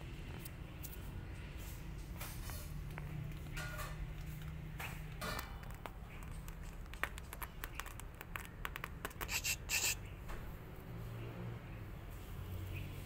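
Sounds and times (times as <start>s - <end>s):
kitten claws scratching denim: 4.4s - 10.1s.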